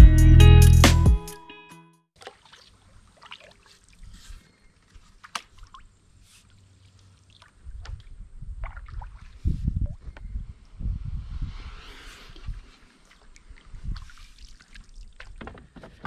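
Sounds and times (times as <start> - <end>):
faint water sounds: 2.2 - 10.7, 12.0 - 15.9
low rumble: 10.4 - 12.8
paddle knocks against hull: 15.2 - 16.0.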